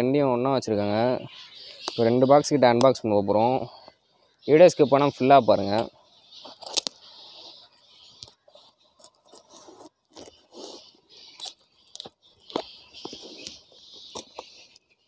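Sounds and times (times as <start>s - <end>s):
blade scraping packing tape: 5.8s - 15.0s.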